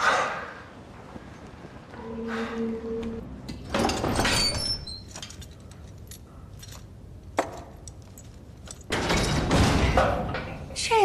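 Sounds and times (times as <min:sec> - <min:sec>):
padlock clicking and rattling: 0:04.9 - 0:09.0.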